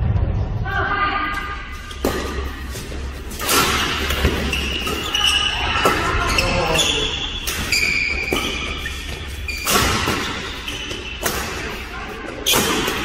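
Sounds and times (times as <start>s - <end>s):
rackets hitting shuttlecock: 1.9s - 6.2s, 7.4s - 13.0s
shoes squeaking on floor: 4.0s - 12.7s.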